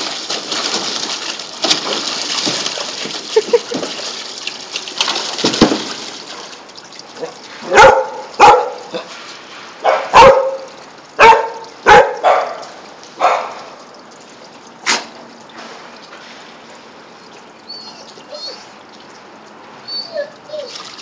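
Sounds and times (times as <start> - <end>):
dog barking: 7.6 - 9.0, 9.8 - 13.7.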